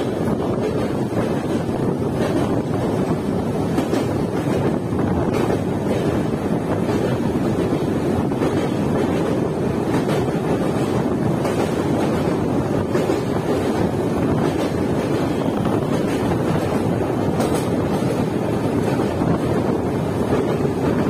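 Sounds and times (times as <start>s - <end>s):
train wheels rumbling on rails: 0.0s - 21.0s
wind buffeting microphone: 0.0s - 21.0s.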